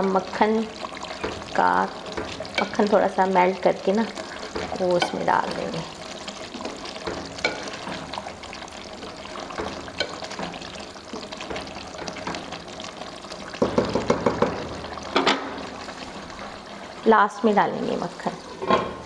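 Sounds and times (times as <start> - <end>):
spatula stirring curry in pot: 0.7 - 16.3
spatula clacking down: 0.8 - 15.7.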